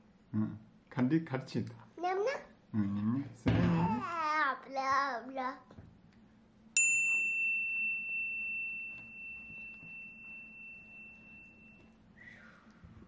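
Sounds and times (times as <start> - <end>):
child's voice: 2.0 - 2.6, 3.8 - 5.8
high bell ding: 6.8 - 12.0.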